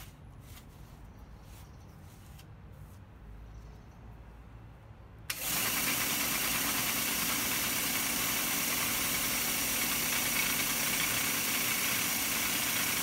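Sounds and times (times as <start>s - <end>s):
belt sander motor running: 5.3s - 13.0s.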